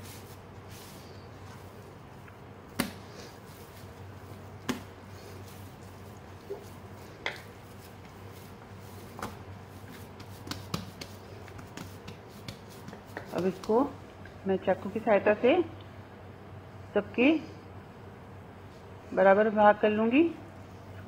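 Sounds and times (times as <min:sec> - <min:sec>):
hands patting dough: 0:00.0 - 0:14.0
dough slapping on board: 0:02.7 - 0:03.2, 0:04.6 - 0:05.0, 0:06.5 - 0:13.9.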